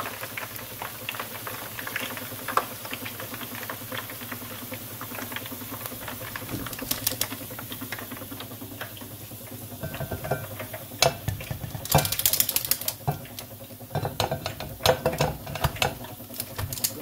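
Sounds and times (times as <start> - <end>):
hot oil crackling and popping: 0.0 - 17.0
steady low hum: 4.9 - 17.0.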